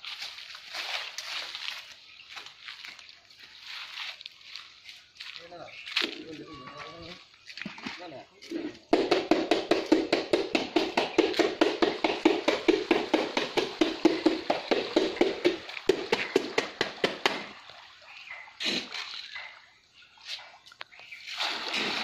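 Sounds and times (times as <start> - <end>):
tapping on a plastic bucket: 8.9 - 17.6.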